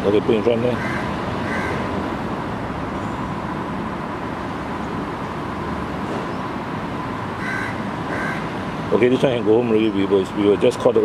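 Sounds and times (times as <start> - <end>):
steady background noise: 0.0 - 11.0.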